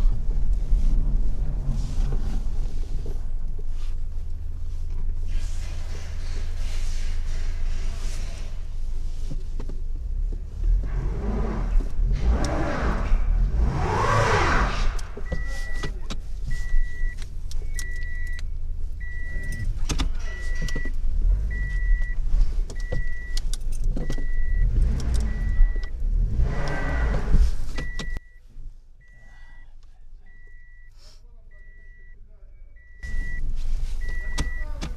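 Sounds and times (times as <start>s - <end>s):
car engine and road rumble: 0.0s - 34.9s
high beeping: 31.6s - 34.7s.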